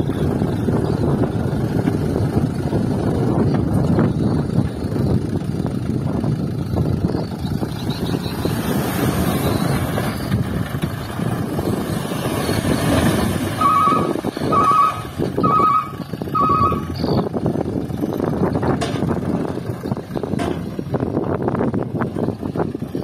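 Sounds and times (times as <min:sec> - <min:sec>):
diesel truck engine running: 0:00.0 - 0:23.0
beeping alarm: 0:13.6 - 0:17.2.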